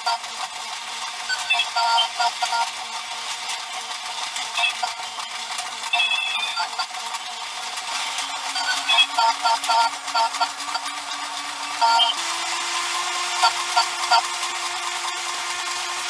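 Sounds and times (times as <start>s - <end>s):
toy electronic tune: 0.0s - 0.3s, 1.2s - 2.8s, 4.4s - 7.0s, 7.9s - 15.1s
toy plastic pieces clattering: 0.0s - 12.2s, 12.8s - 16.0s.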